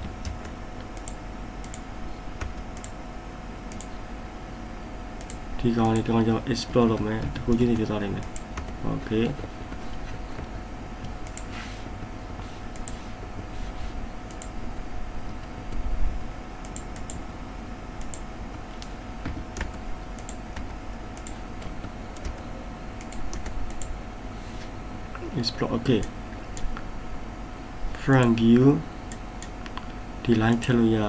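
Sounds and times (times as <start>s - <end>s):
keyboard typing: 0.0s - 3.0s, 5.2s - 12.1s, 18.0s - 23.9s
faint hum: 0.0s - 31.0s
mouse clicks: 3.7s - 4.0s.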